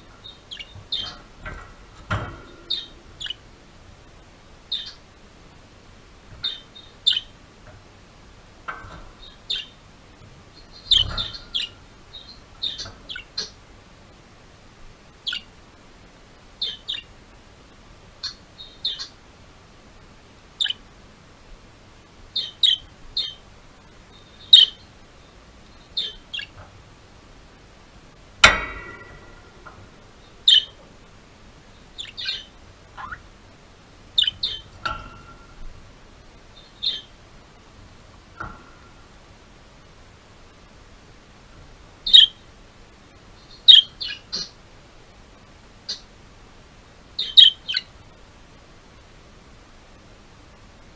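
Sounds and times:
budgerigars chirping: 0.2 - 1.6, 2.7 - 3.4, 4.7 - 5.0, 6.4 - 7.3, 9.2 - 9.8, 10.6 - 13.6, 15.2 - 15.5, 16.6 - 17.1, 18.2 - 19.2, 20.6 - 20.8, 22.4 - 23.4, 24.1 - 24.9, 25.8 - 26.6, 30.2 - 30.8, 32.0 - 33.3, 34.2 - 35.0, 36.6 - 37.1, 42.1 - 42.4, 43.4 - 44.6, 47.2 - 47.9
sharp ringing knock: 28.4 - 30.7.

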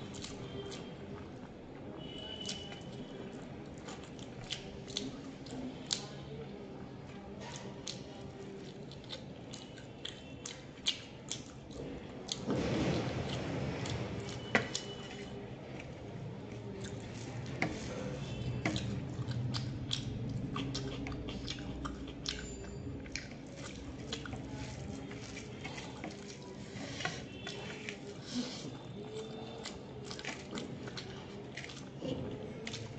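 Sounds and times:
chewing with mouth clicks: 0.0 - 32.9.

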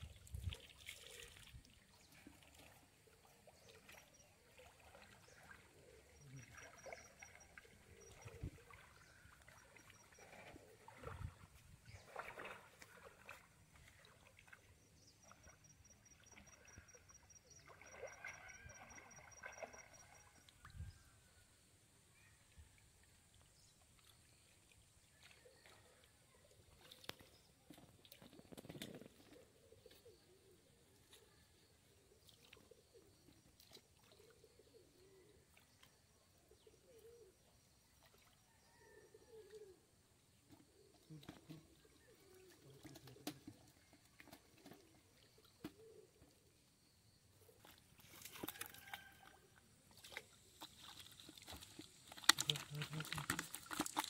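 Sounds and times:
pond water sloshing and splashing: 0.0 - 21.5, 22.1 - 54.0
bird cooing: 0.9 - 1.4, 4.4 - 11.4, 28.6 - 31.5, 32.2 - 33.2, 34.0 - 35.5, 36.5 - 37.4, 38.7 - 39.9, 40.5 - 43.8, 44.6 - 46.4.

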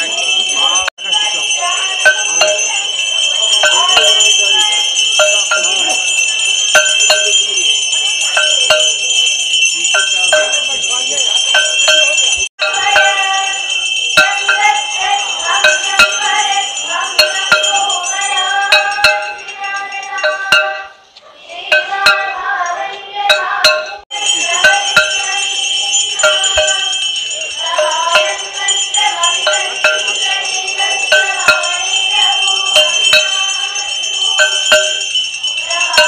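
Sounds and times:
hand bells ringing: 0.0 - 36.0
devotional singing: 12.6 - 36.0
sharp metallic strikes: 21.7 - 22.6, 23.3 - 24.0.

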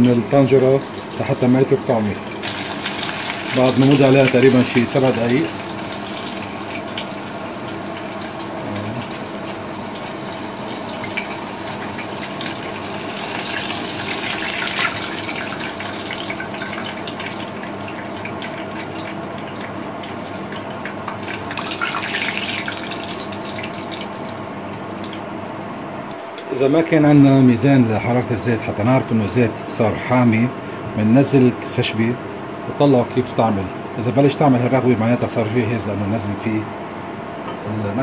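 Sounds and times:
food deep-frying in hot oil: 0.0 - 25.3.

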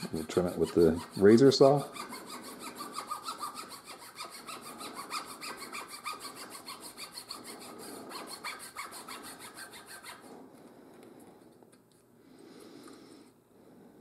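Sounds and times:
saw cutting wooden dowel: 0.0 - 10.4.

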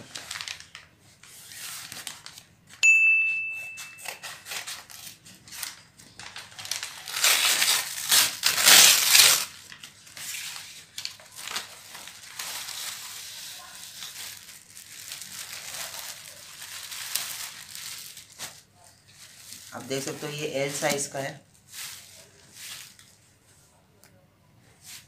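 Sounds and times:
paper bag crumpling and tearing: 0.0 - 2.8, 4.0 - 23.2
bright ding: 2.8 - 4.5.

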